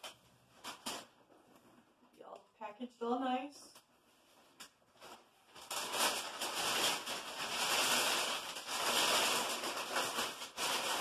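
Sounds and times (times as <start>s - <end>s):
packing paper crinkling: 0.0s - 1.2s, 4.9s - 11.0s.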